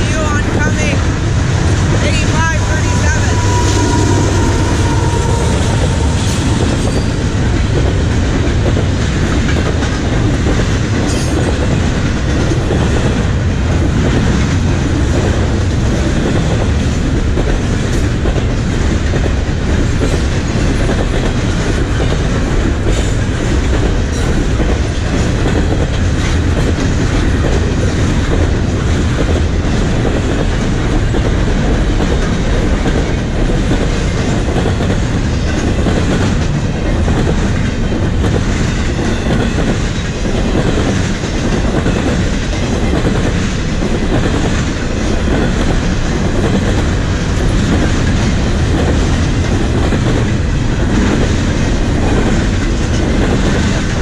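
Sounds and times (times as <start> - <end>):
freight train rumbling past: 0.0 - 54.0.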